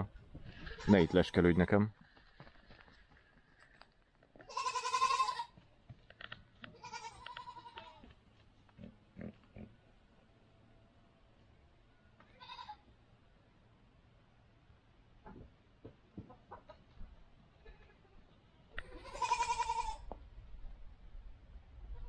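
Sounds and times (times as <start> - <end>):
goats bleating: 0.5 - 1.8, 4.4 - 5.6, 6.7 - 8.1, 12.3 - 12.8, 18.8 - 20.0.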